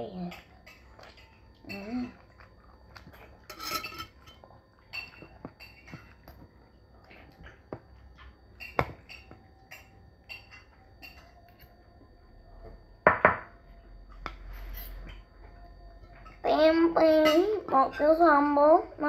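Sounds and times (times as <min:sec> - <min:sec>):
cutlery clinking on ceramic plate: 0:03.1 - 0:06.3, 0:08.6 - 0:11.6.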